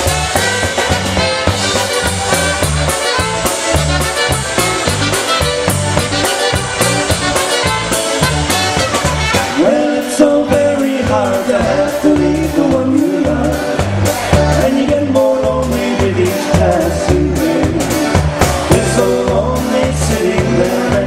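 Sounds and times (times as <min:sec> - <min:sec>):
polka band playing: 0:00.0 - 0:21.0
man singing: 0:09.4 - 0:21.0.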